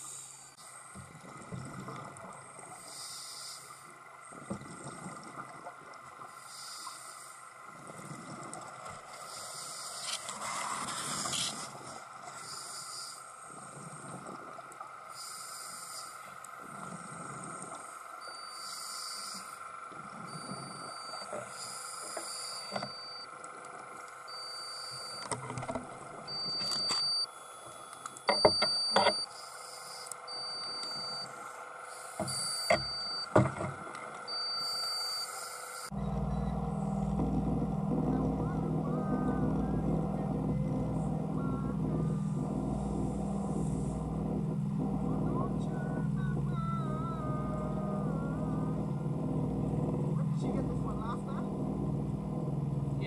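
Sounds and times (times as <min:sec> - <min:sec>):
boat engine drone: 0:00.0 - 0:53.0
underwater steady hum: 0:00.0 - 0:53.0
low rumbling: 0:35.9 - 0:53.0
faint voices: 0:37.9 - 0:44.1, 0:44.8 - 0:49.1.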